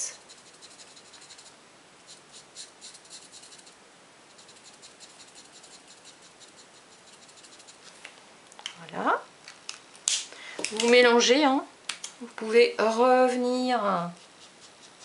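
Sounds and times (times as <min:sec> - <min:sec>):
marker scratching on cardstock: 0:00.1 - 0:07.9, 0:14.2 - 0:15.0.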